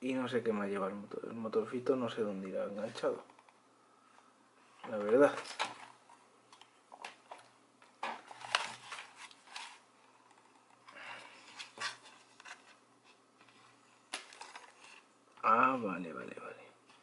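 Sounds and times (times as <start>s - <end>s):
plastic casing and cord handling: 4.8s - 11.0s, 13.4s - 15.0s.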